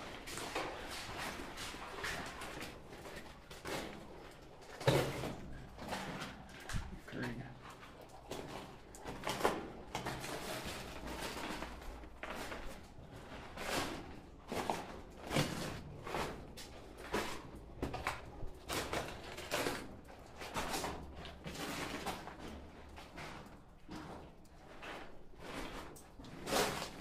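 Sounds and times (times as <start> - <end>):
footsteps wading through water: 0.0 - 27.0.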